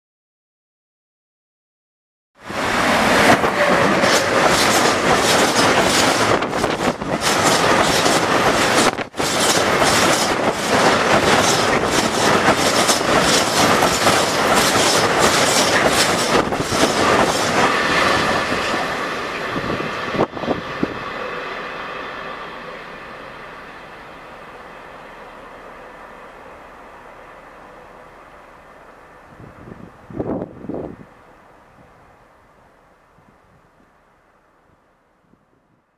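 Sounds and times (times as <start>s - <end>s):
freight train wheels clattering: 2.9s - 21.4s.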